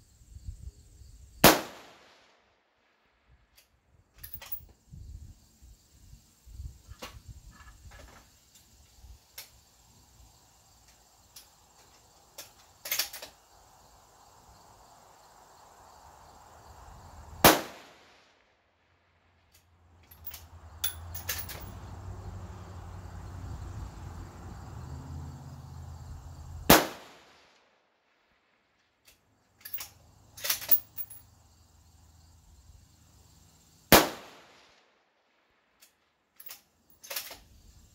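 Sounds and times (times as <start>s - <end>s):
rifle shot: 1.4s - 2.2s, 17.4s - 18.1s, 26.7s - 27.4s, 33.9s - 34.6s.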